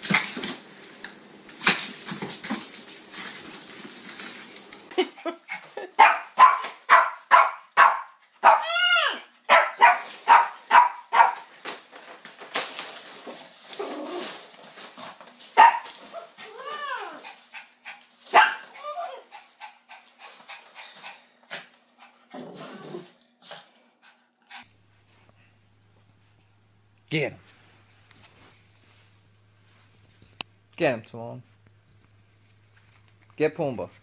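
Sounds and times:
dog yelping: 6.0 - 11.4, 15.6 - 17.3, 18.3 - 19.3
small dog barking: 6.0 - 11.4, 15.6 - 15.9, 18.3 - 18.7.

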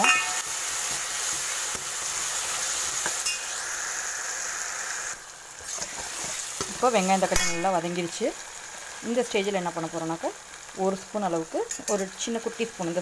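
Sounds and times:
ladle clinking against pan: 0.0 - 0.4, 11.7 - 12.2
vegetables sizzling in hot oil: 0.0 - 13.0.

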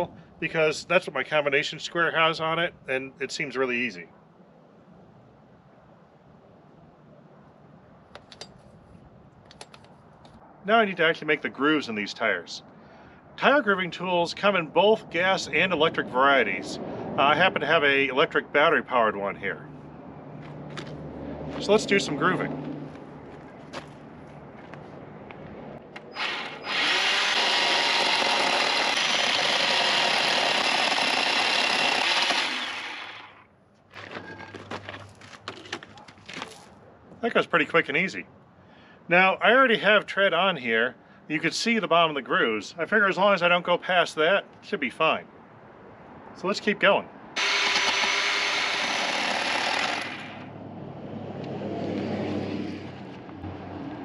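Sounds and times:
power tool whine cutting tyre: 26.1 - 33.4, 47.4 - 50.5.

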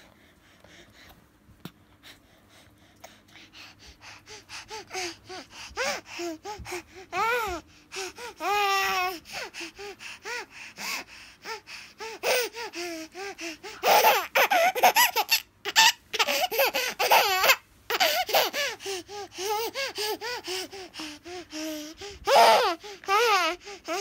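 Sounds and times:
baby laughing: 13.8 - 18.8.

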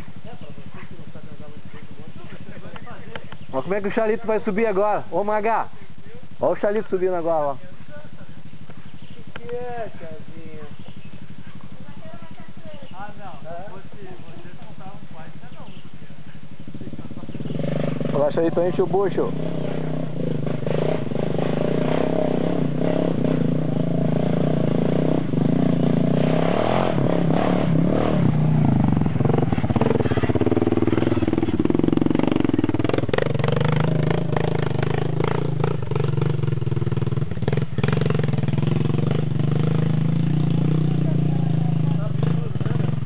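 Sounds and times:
quad bike engine under load: 16.4 - 43.0.

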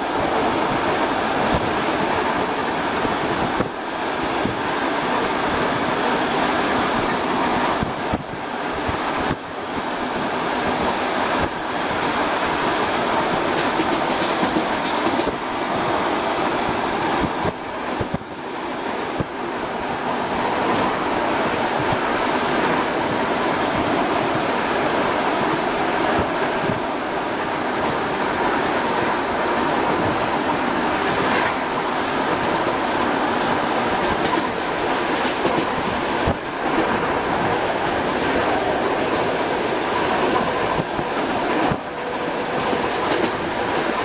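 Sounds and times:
train wheels rolling on rails: 0.0 - 44.0.

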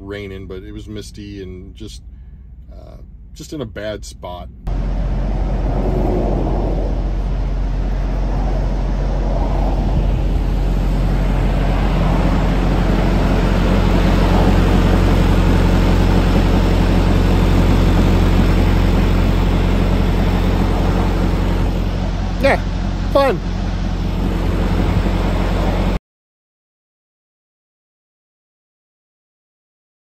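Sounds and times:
diesel truck engine idling: 0.0 - 26.0
highway traffic passing: 4.7 - 26.0.

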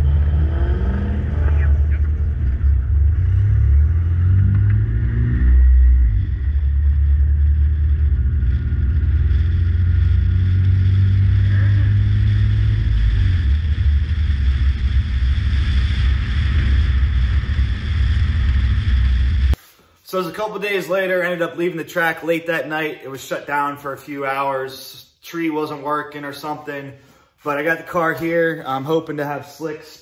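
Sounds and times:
car engine accelerating: 0.0 - 19.6.

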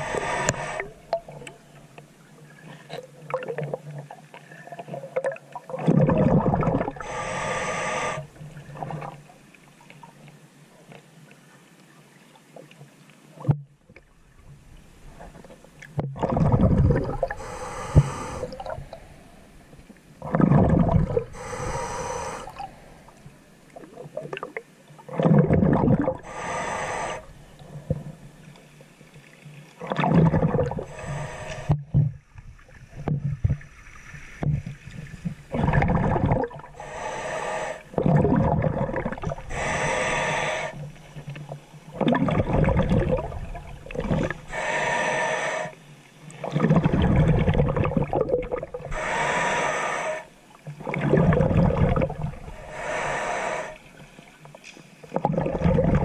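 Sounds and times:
diver inhaling through regulator: 0.0 - 1.2, 6.7 - 8.5, 16.4 - 23.4, 25.7 - 28.2, 30.3 - 32.0, 35.7 - 41.0, 44.2 - 45.8, 48.8 - 50.4, 51.2 - 54.0
exhaled bubbles rushing: 5.7 - 7.0, 16.1 - 17.5, 20.2 - 21.4, 22.2 - 26.3, 29.8 - 31.8, 35.5 - 37.2, 37.9 - 39.8, 41.9 - 44.5, 46.4 - 49.0, 50.8 - 52.6, 55.1 - 56.0.

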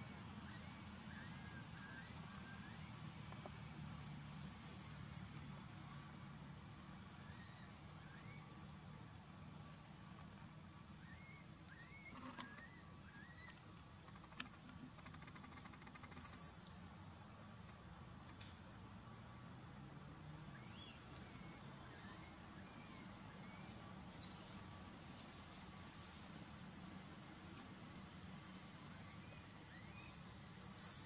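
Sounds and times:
faint chirps: 0.0 - 3.6, 4.5 - 6.1, 6.9 - 17.0, 28.9 - 31.0
insects droning: 0.0 - 31.0.

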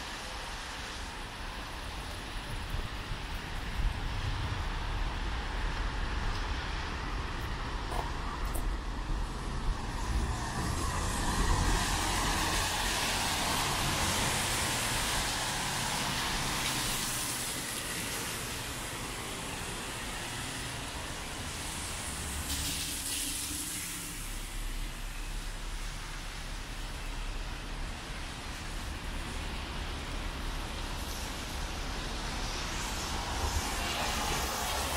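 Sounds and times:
distant traffic: 0.0 - 34.9
tyres hissing on wet pavement: 0.0 - 34.9
rain hiss: 10.8 - 34.9.

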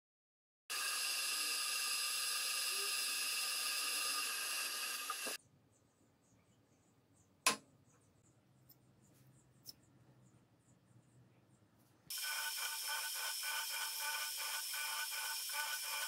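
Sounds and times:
drill boring into metal: 0.7 - 5.4, 12.1 - 16.0
milling machine spindle whine: 0.7 - 5.4, 12.1 - 16.0.

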